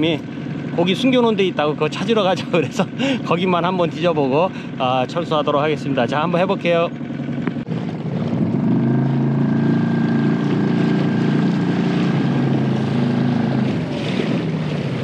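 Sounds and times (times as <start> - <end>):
small outboard motor running: 0.0 - 15.0
water washing along hull: 0.0 - 15.0.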